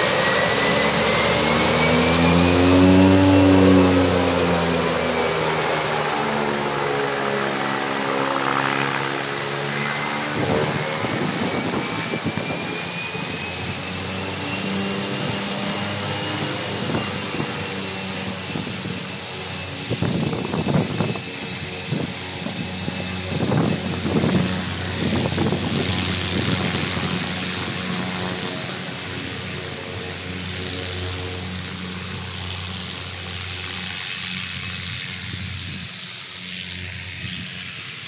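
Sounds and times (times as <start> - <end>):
propeller drone: 0.0 - 38.0
turbine whine: 0.0 - 38.0
wind buffeting the microphone: 9.9 - 29.6.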